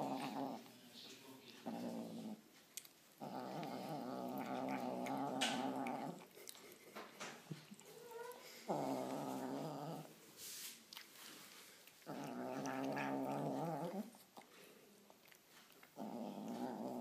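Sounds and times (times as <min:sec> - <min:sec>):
kitten growling: 0:00.0 - 0:00.7, 0:01.5 - 0:02.4, 0:03.2 - 0:06.6, 0:07.6 - 0:10.1, 0:12.0 - 0:14.5, 0:15.2 - 0:17.0.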